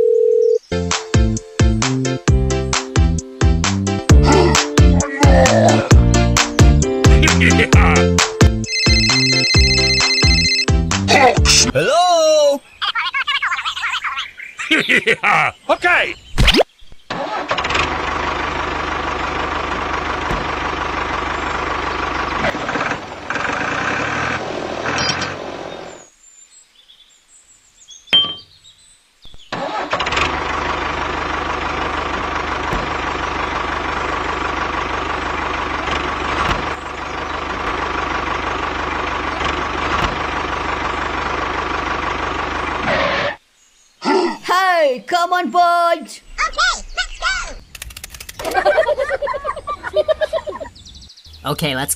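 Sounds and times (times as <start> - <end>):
tractor engine running: 0.7 - 11.7, 17.1 - 26.0, 29.5 - 43.4, 47.6 - 51.9.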